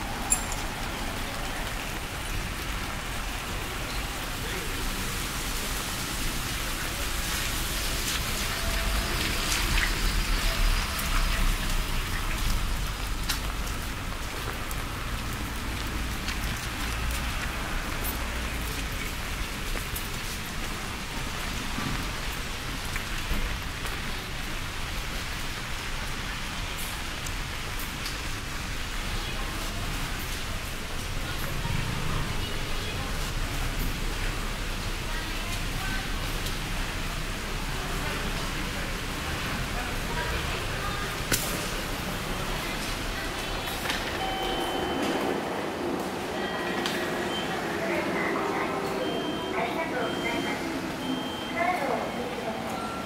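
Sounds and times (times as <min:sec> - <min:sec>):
sharp drips: 0:00.0 - 0:23.5
steady rain falling: 0:00.0 - 0:53.0.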